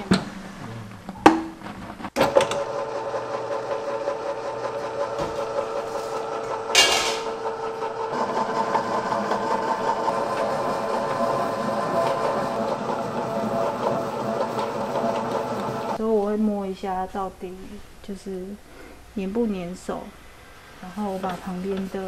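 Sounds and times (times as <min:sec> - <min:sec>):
stand mixer motor running: 0:02.2 - 0:16.0.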